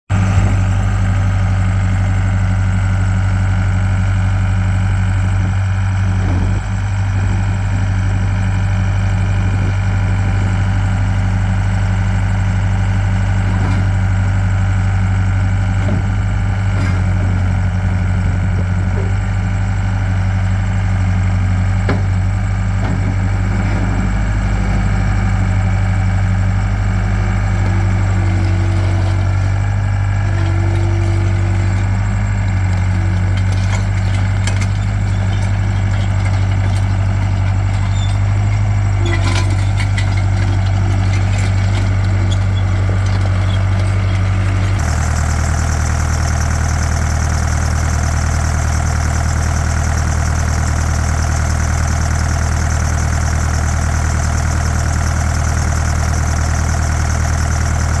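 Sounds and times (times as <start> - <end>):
diesel engine humming: 0.1 - 58.0.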